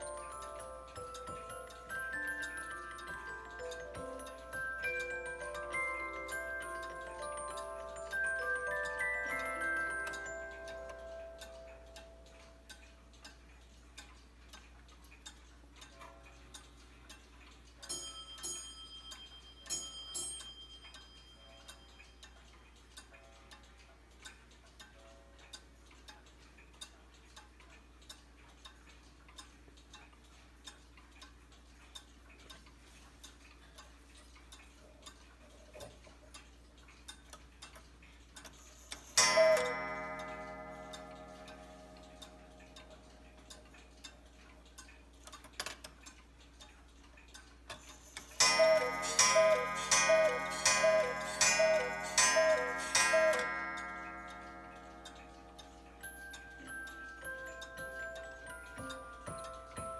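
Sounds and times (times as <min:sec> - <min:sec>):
clock ticking: 0:00.0 - 0:59.9.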